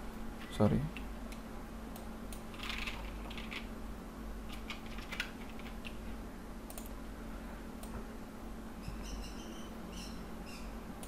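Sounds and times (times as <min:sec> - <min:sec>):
faint steady hum: 0:00.0 - 0:11.0
keyboard typing: 0:02.4 - 0:03.7, 0:04.5 - 0:06.0.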